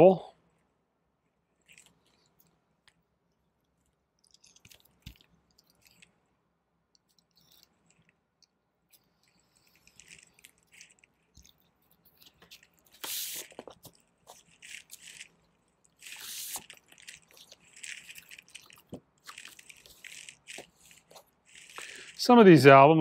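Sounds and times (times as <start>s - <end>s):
plastic shrink wrap crinkling: 8.9s - 22.6s
paper rustling: 9.5s - 22.6s.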